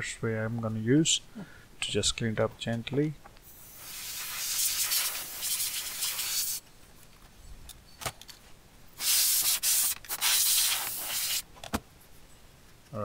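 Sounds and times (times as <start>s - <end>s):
compressed air hissing bursts: 3.4s - 6.6s, 9.0s - 11.4s.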